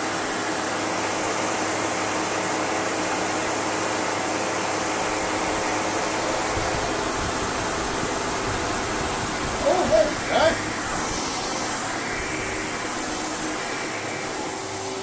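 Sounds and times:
vacuum cleaner whirring: 0:00.0 - 0:15.0
low rumble of vacuum head: 0:05.0 - 0:15.0.

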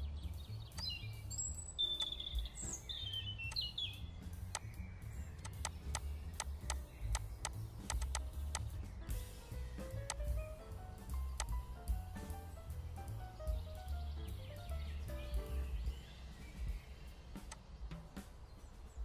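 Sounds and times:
high bird-like chirps: 0:00.0 - 0:08.8
background music with bass: 0:00.0 - 0:19.0
sharp clicks: 0:02.0 - 0:02.2, 0:03.5 - 0:03.7, 0:04.5 - 0:04.8, 0:05.4 - 0:08.8, 0:10.0 - 0:10.3, 0:11.4 - 0:11.6, 0:17.4 - 0:17.6.

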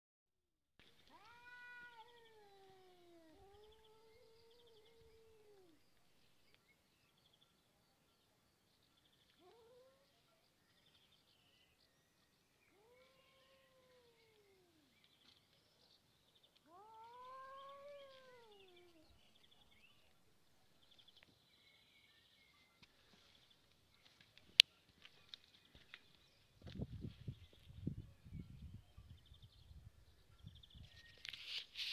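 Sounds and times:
cats yowling: 0:01.0 - 0:05.8, 0:09.4 - 0:10.2, 0:12.7 - 0:14.9, 0:16.6 - 0:19.2.

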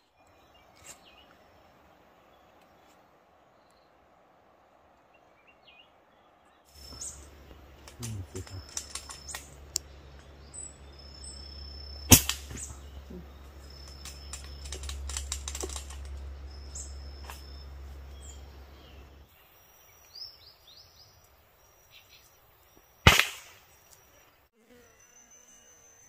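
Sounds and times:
small birds chirping: 0:00.0 - 0:26.0
gunshots: 0:12.1 - 0:12.9, 0:23.1 - 0:23.6.

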